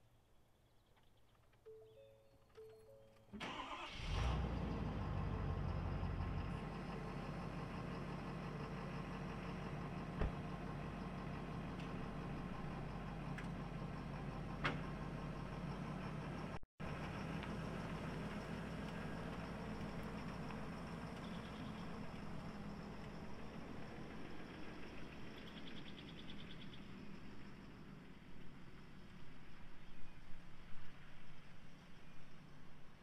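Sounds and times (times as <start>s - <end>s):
short beeps: 1.7s - 3.4s
pickup engine starting and idling: 3.3s - 29.1s.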